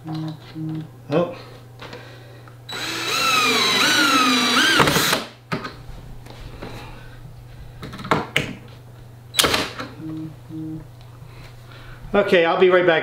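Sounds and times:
cordless drill driving screw: 2.7 - 5.3.

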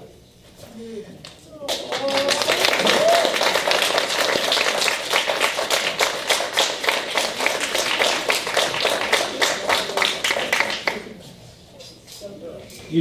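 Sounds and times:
crowd applauding: 1.6 - 11.1.

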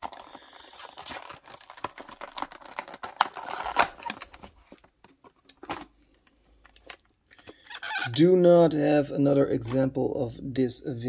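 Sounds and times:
plastic blister crinkling and clicking: 0.0 - 8.1.

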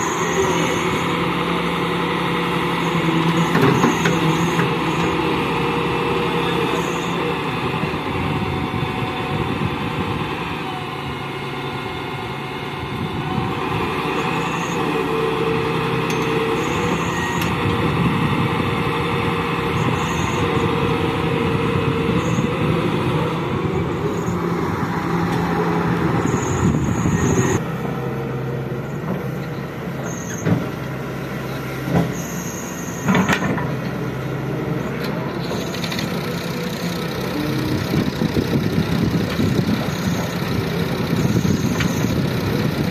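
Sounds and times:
excavator diesel engine: 0.0 - 42.9
hydraulics moving bucket: 2.4 - 7.3, 28.8 - 42.9.

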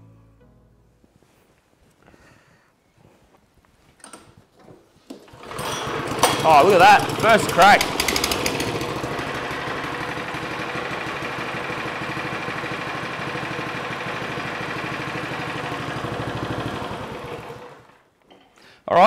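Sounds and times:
lawn mower engine running: 5.2 - 18.0.

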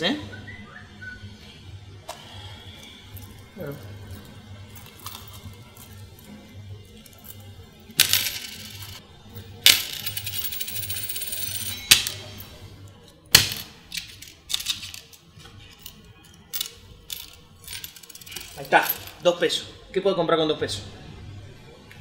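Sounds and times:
coins jingling: 3.1 - 9.0, 9.6 - 12.6, 13.5 - 19.2
coins clattering on a counter: 3.1 - 19.2.

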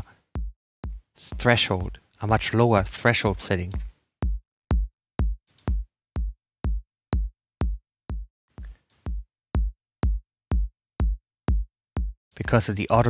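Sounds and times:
electronic kick drum hits: 0.0 - 2.0, 4.2 - 8.3, 9.1 - 12.2.

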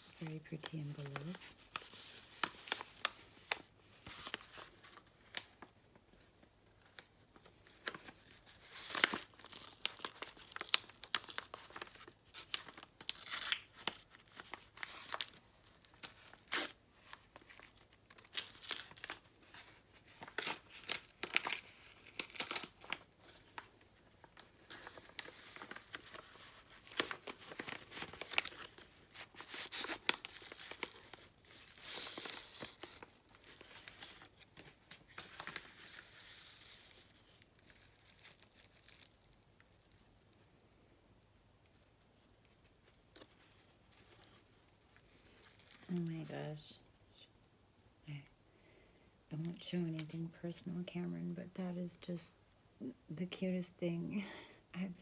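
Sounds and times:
envelope paper crinkling: 0.0 - 41.0, 41.6 - 46.7
paper ripping: 7.8 - 23.4.

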